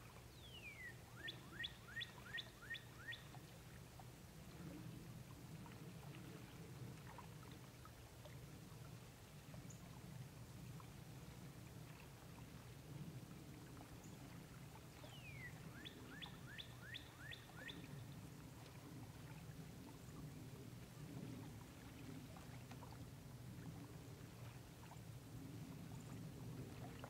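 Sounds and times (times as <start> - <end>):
songbird singing: 0.2 - 3.5, 15.0 - 18.0.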